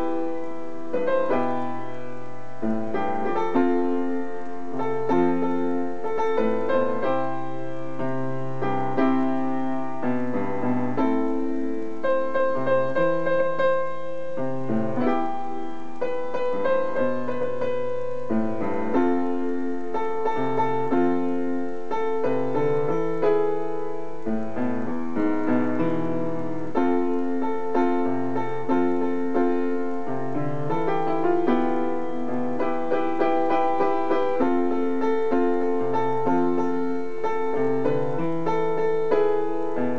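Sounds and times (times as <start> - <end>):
solo piano playing: 0.0 - 39.9.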